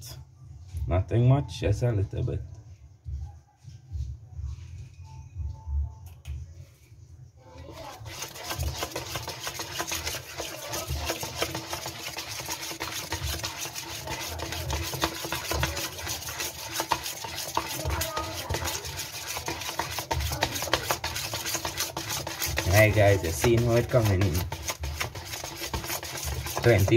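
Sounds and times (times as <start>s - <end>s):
spoon beating batter in metal bowl: 7.8s - 26.9s.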